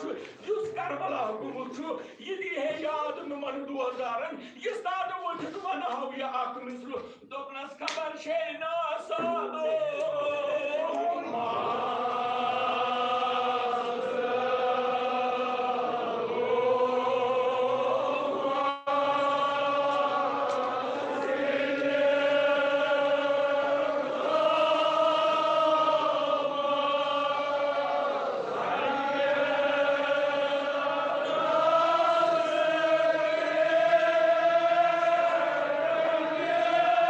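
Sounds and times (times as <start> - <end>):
men chanting together: 9.8 - 37.0.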